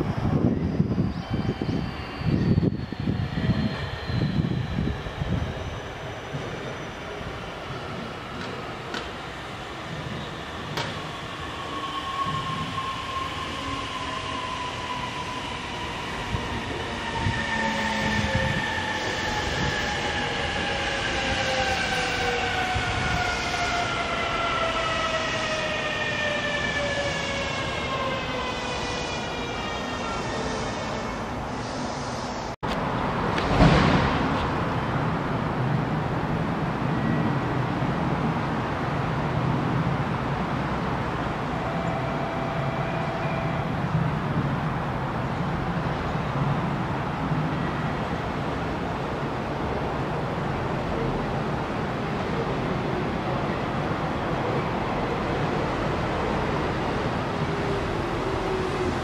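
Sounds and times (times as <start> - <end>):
train running noise: 0.0 - 28.5.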